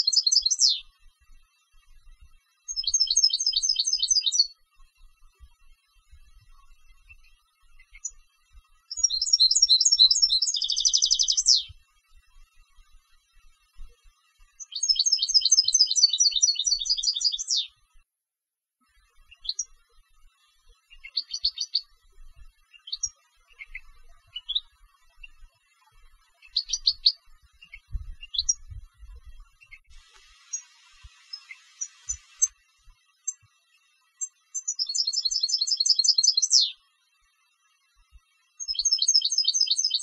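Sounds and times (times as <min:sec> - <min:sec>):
goldfinch singing: 0:00.0 - 0:00.9, 0:02.7 - 0:04.6, 0:08.9 - 0:11.8, 0:14.6 - 0:17.8, 0:19.3 - 0:19.8, 0:20.9 - 0:21.9, 0:22.7 - 0:25.5, 0:26.3 - 0:32.6, 0:34.2 - 0:36.8, 0:38.6 - 0:40.0.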